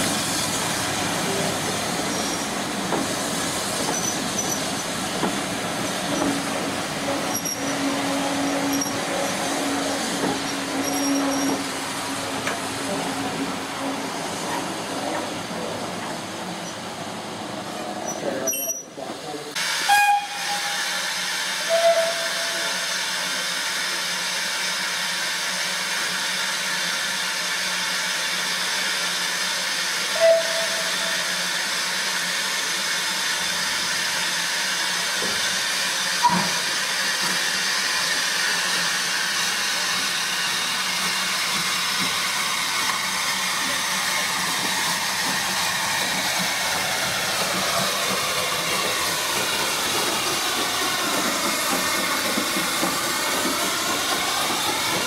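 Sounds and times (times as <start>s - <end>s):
steam locomotive hissing: 0.0s - 55.0s
train whistle toots: 19.7s - 22.9s, 30.0s - 31.4s.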